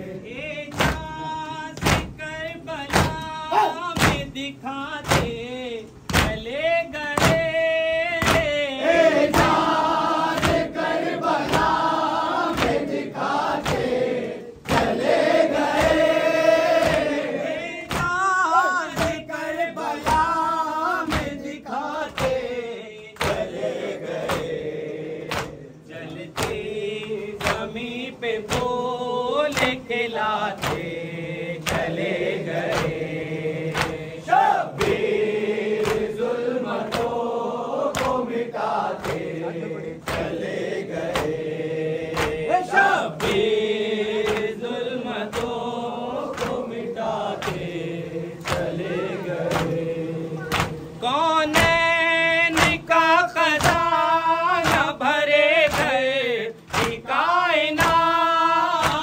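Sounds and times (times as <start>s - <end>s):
mourners chanting in chorus: 0.0s - 2.1s, 7.2s - 59.0s
hands striking the chest: 0.7s - 1.2s, 2.9s - 4.3s, 5.0s - 5.4s, 6.1s - 6.4s, 7.2s - 7.5s, 8.2s - 8.6s, 10.3s - 10.8s, 12.5s - 12.9s, 13.5s - 16.2s, 17.9s - 18.3s, 18.9s - 19.3s, 21.0s - 22.5s, 25.3s - 25.6s, 30.5s - 31.0s, 31.6s - 34.0s, 37.9s - 38.3s, 38.9s - 39.3s, 42.1s - 42.6s, 50.5s - 50.9s, 52.5s - 52.8s, 53.6s - 53.9s, 54.6s - 55.0s, 56.7s - 57.0s.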